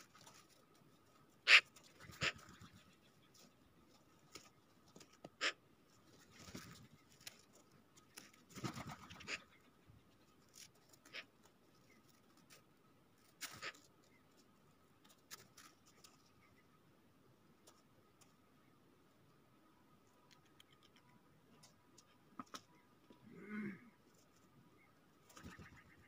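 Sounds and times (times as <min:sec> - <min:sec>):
rustling: 0:00.0 - 0:09.0, 0:10.1 - 0:16.6
birds tapping on snow: 0:00.0 - 0:16.8, 0:17.4 - 0:19.2, 0:24.0 - 0:26.0.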